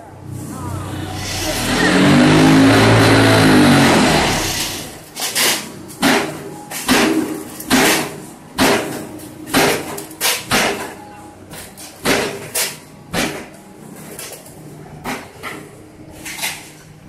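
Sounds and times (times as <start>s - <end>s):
engine running: 0.0s - 5.4s.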